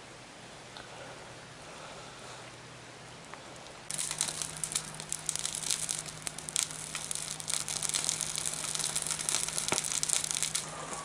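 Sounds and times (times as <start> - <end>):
wood fire crackling and popping: 3.9 - 11.0.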